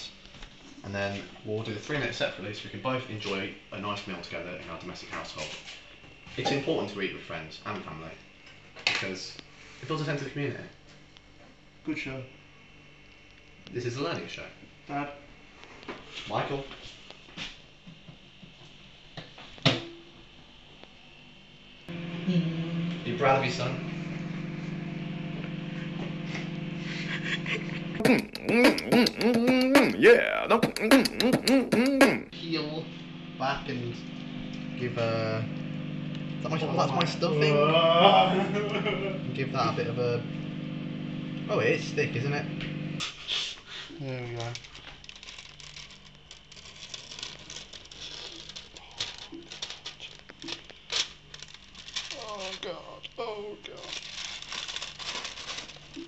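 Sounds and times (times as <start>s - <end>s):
microwave oven humming: 19.8s - 28.7s, 31.7s - 43.1s
person making swooping vocal noises: 26.9s - 32.4s
plastic film crinkling: 44.3s - 53.0s, 53.6s - 56.0s.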